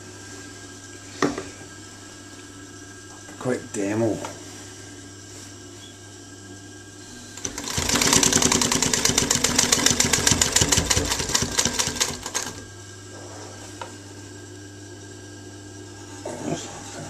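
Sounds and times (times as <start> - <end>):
motor humming: 7.0 - 13.0
sewing machine stitching: 7.4 - 12.6.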